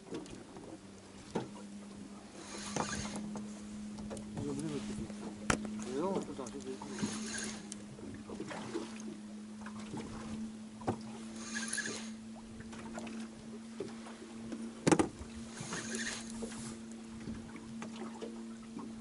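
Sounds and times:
steady low hum: 0.0s - 19.0s
waves slapping boat hull: 0.0s - 19.0s
knock against boat: 3.3s - 6.3s, 10.8s - 11.1s, 14.8s - 15.2s.

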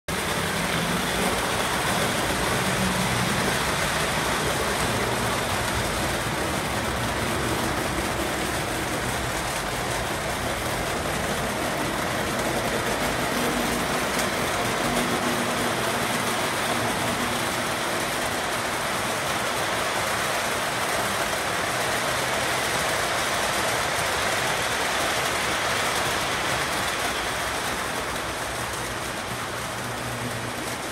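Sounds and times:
model train rumbling: 0.1s - 30.9s.

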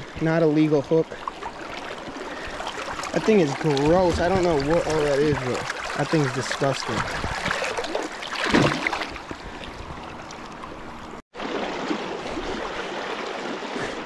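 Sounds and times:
fish splashing into water: 1.4s - 9.3s.

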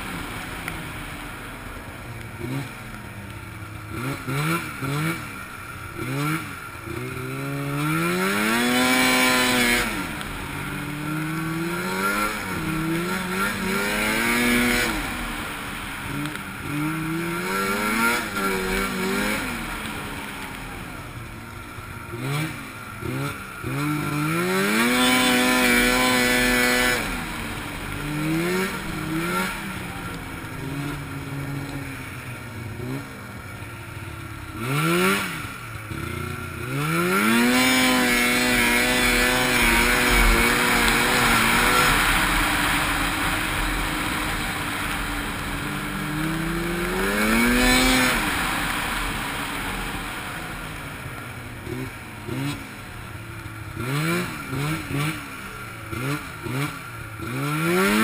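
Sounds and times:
snowmobile engine revving: 0.0s - 58.0s.

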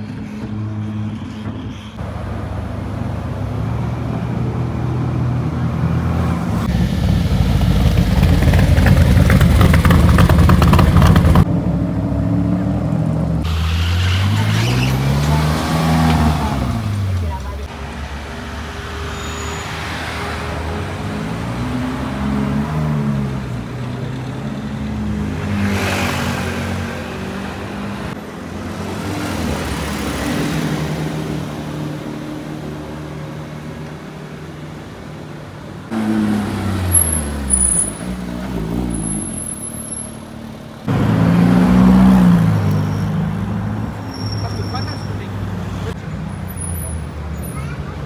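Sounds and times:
car engines in street traffic: 0.0s - 48.0s.

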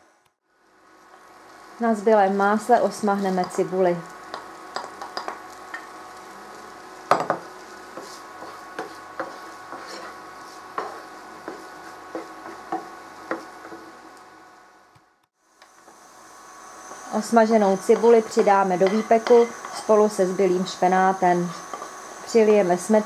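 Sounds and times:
onion sizzling in a frying pan: 0.4s - 23.0s
spoon knocking on pan: 4.3s - 5.9s, 17.9s - 19.8s.

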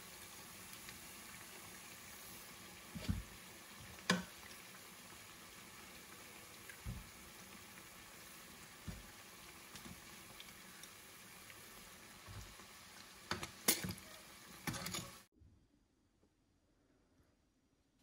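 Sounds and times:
dough sizzling in hot oil: 0.0s - 15.3s
metal tongs knocking pan: 13.3s - 15.2s.

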